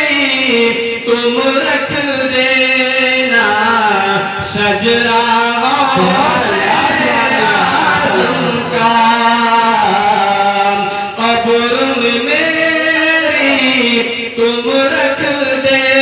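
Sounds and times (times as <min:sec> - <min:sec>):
man singing into a microphone: 0:00.0 - 0:16.0
singer breathing: 0:10.9 - 0:11.2.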